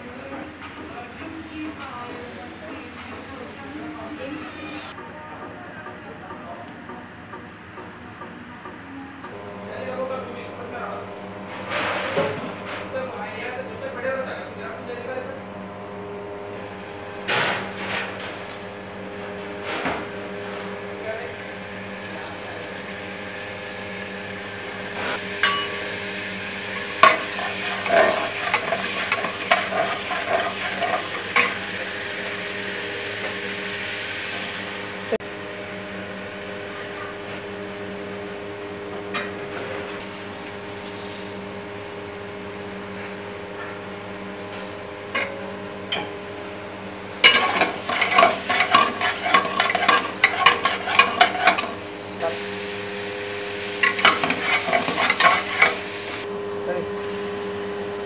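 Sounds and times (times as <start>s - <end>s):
steady hum: 0.0s - 58.0s
hot oil sizzling in pot: 20.9s - 58.0s
ladle scraping and clanking on pot: 26.8s - 31.7s, 47.2s - 51.8s, 53.8s - 56.2s.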